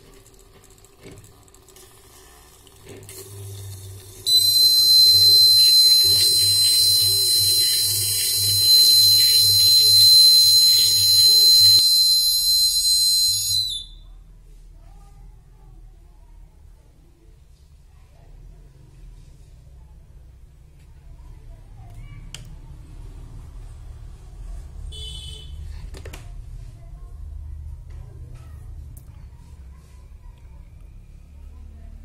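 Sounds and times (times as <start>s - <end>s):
water running into jar: 0.0s - 11.9s
high-pitched buzzer tone: 4.2s - 14.0s.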